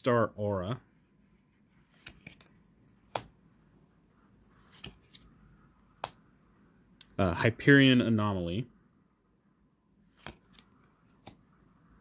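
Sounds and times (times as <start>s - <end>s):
card stock rustling: 1.7s - 3.3s, 4.5s - 5.4s, 10.0s - 11.4s.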